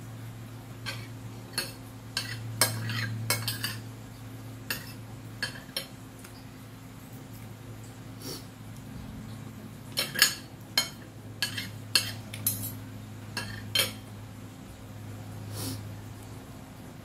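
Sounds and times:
steady low hum: 0:00.0 - 0:17.0
cutlery clinking on a plate: 0:00.8 - 0:03.8, 0:09.9 - 0:12.8, 0:13.4 - 0:14.0.

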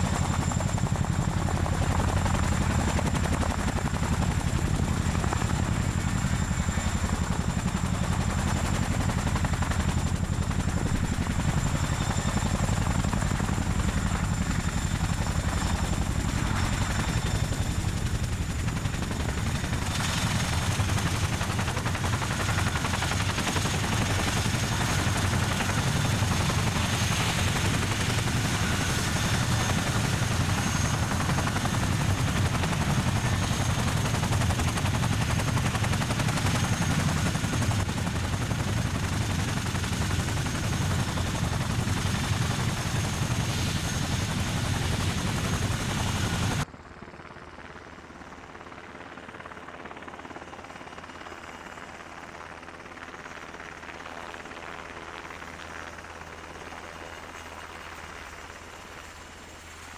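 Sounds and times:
helicopter rotor beat: 0:00.0 - 0:59.9.

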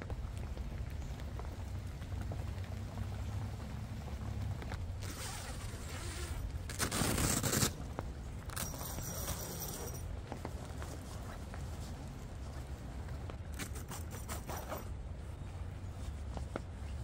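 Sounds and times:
low steady rumble: 0:00.0 - 0:13.6
tent zipper unzipping: 0:05.0 - 0:07.8.

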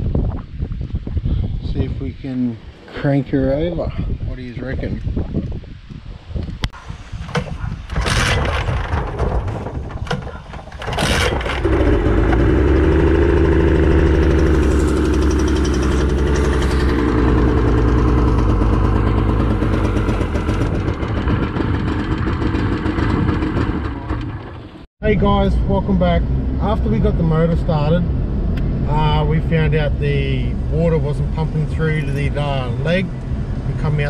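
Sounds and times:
outboard motor cranking: 0:07.3 - 0:24.8
outboard motor running: 0:07.9 - 0:24.8.

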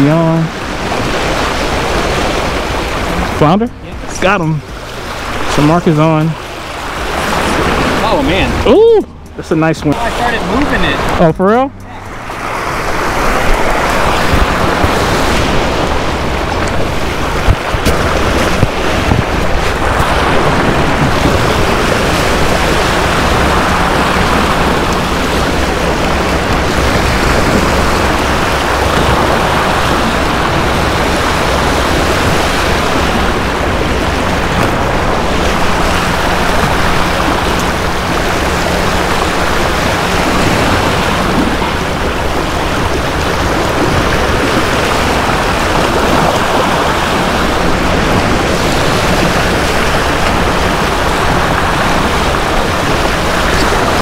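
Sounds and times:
waves breaking against rocks: 0:00.0 - 0:54.0
wind buffeting microphone: 0:00.0 - 0:54.0.

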